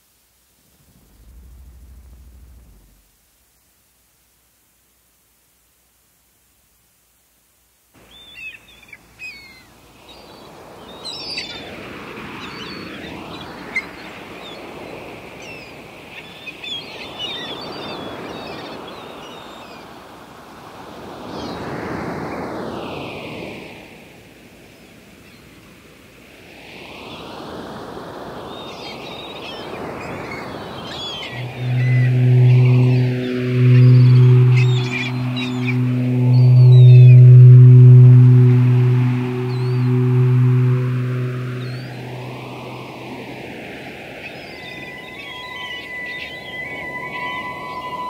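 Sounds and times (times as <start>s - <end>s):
ocean surf: 31.0s - 48.0s.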